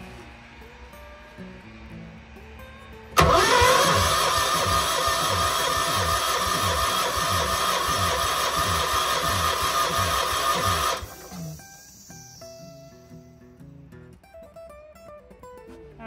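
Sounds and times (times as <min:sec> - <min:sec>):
quiet guitar music: 0:00.0 - 0:05.4, 0:11.0 - 0:16.0
engine cranking without firing: 0:03.2 - 0:12.4.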